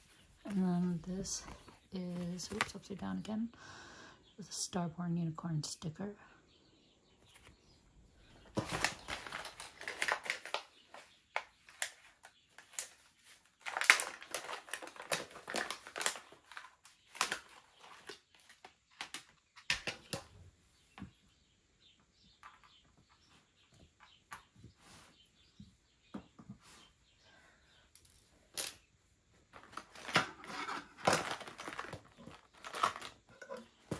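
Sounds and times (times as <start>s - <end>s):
packaging crinkling and rustling: 8.4s - 20.1s, 29.5s - 33.9s.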